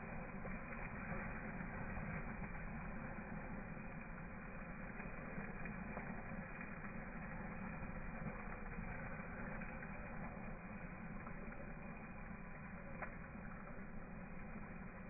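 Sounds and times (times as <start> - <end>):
water hissing and splashing: 0.0 - 15.0.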